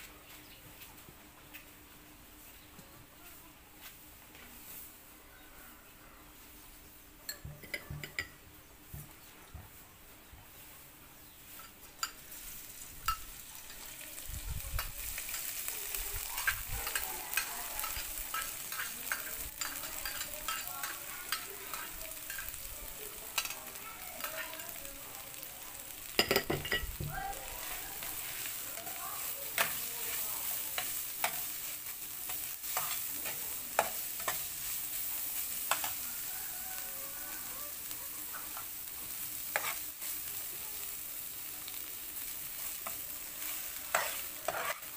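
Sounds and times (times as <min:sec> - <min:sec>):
spatula clatter: 0:07.3 - 0:08.4, 0:14.7 - 0:22.6, 0:23.2 - 0:24.6, 0:26.2 - 0:36.0, 0:39.4 - 0:40.2, 0:42.6 - 0:44.9
garlic sizzling in hot oil: 0:10.5 - 0:44.9
metal spatula scraping pan: 0:39.5 - 0:39.9, 0:43.4 - 0:44.9.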